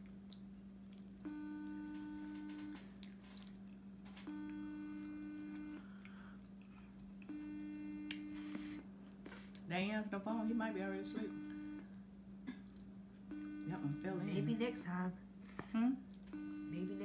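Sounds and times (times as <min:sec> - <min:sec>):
steady low hum: 0:00.0 - 0:17.0
phone ringback tone: 0:04.2 - 0:05.9, 0:11.0 - 0:11.9, 0:13.3 - 0:14.7, 0:16.4 - 0:17.0.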